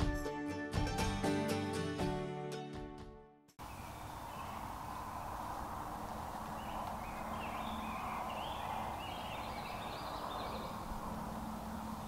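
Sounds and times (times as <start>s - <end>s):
woodland ambience hiss: 3.6s - 12.0s
high-pitched bird calls: 6.5s - 10.9s.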